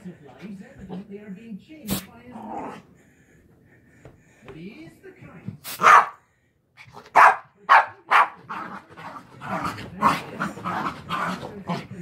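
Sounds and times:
small dog barking: 0:05.8 - 0:06.2, 0:07.1 - 0:08.6.

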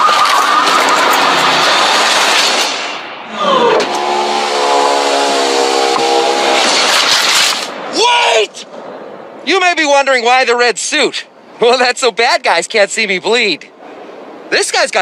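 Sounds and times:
rushing vehicle noise: 0:00.0 - 0:08.0, 0:12.9 - 0:14.7
traffic noise: 0:00.0 - 0:15.0
vehicle horn blast: 0:03.6 - 0:06.9.

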